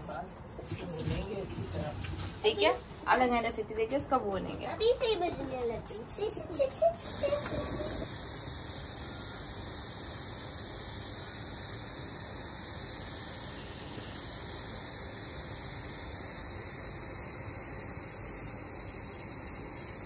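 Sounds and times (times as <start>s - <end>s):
pressure cooker steam hissing: 5.9s - 20.0s.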